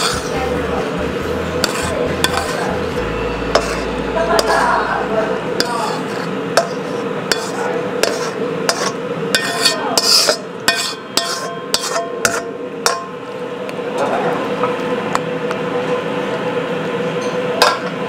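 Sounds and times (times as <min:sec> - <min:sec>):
spatula scraping a wok: 0:00.0 - 0:12.6
steady hum: 0:00.0 - 0:18.0.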